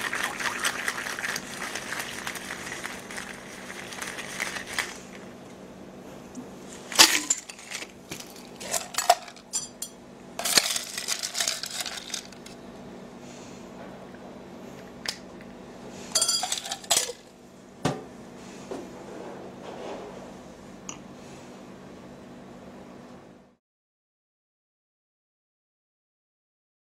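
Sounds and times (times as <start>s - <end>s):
drink pouring: 0.0s - 5.2s
metal cocktail shaker clinking: 16.2s - 17.2s.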